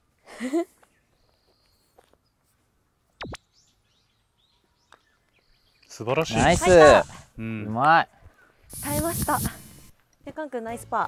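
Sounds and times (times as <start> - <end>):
faint bird chirps: 0.8 - 6.0.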